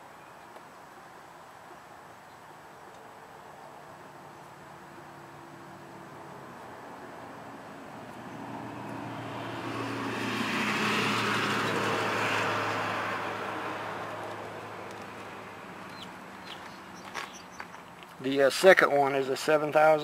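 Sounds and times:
road noise: 0.0 - 20.0
vehicle engine passing by: 4.2 - 18.0.

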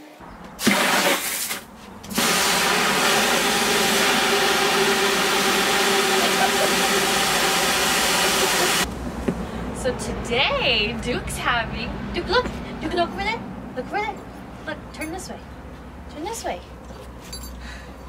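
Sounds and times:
hose water running into tub: 0.6 - 8.9.

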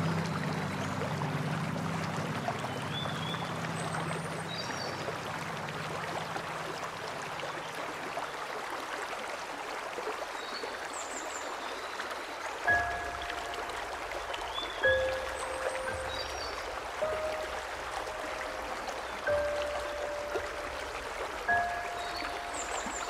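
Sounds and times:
stream splashing over rocks: 0.0 - 23.0
high bird chirps: 12.7 - 18.2, 21.5 - 23.0.

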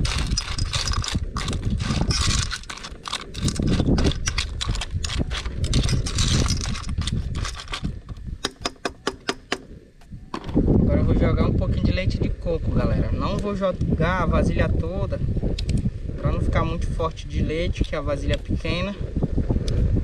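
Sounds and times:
metal spoon scraping shells and pot: 0.0 - 9.5
wind rumble on microphone: 0.0 - 20.0.

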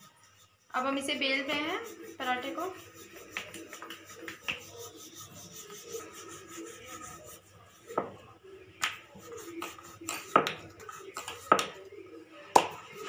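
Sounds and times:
rolling pin rubbing dough: 0.0 - 12.1.

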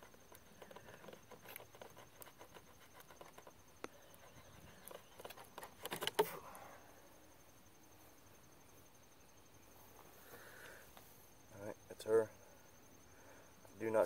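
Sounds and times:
arrowhead creaking in wood: 4.2 - 6.4.

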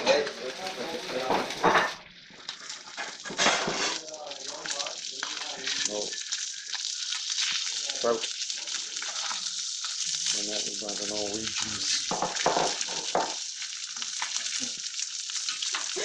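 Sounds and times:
fish sizzling in a pan: 0.0 - 16.0
metal spatula scraping a pan: 2.8 - 4.0.

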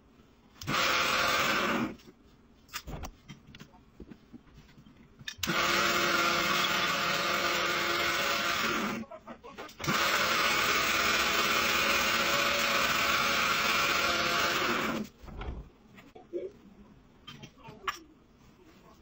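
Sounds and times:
wood lathe running: 5.4 - 9.0, 9.8 - 15.1.

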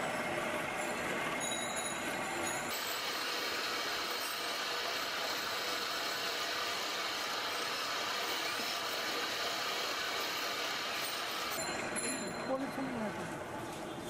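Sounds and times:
cotton candy machine whirring: 0.0 - 13.7
street traffic: 8.6 - 14.0.

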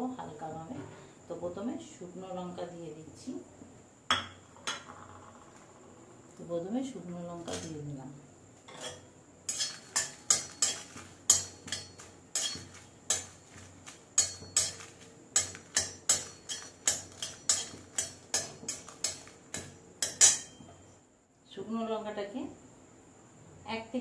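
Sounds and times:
spatula scraping metal pan: 8.7 - 20.6.

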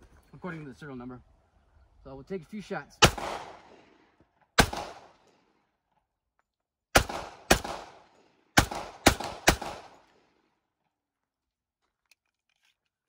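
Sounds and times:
pistol shots echoing: 3.0 - 4.0, 4.6 - 5.4, 6.9 - 10.4.

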